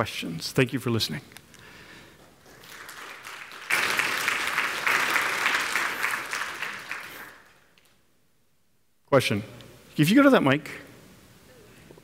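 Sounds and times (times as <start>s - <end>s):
audience applauding: 2.4s - 7.9s.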